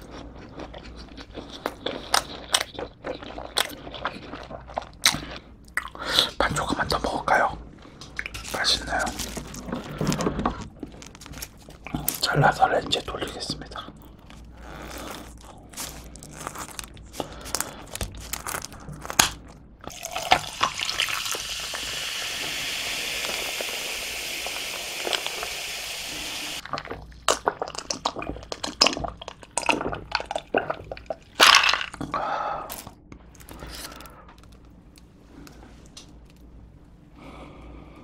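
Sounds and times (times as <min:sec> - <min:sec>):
scissors crunching through crust: 0:15.0 - 0:19.4
person gulping: 0:19.9 - 0:21.9, 0:26.6 - 0:33.0
soda pouring and fizzing: 0:19.9 - 0:26.6.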